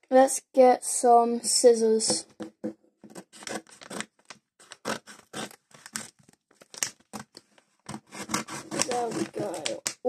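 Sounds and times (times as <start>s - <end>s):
scissors cutting packaging: 3.1s - 10.0s.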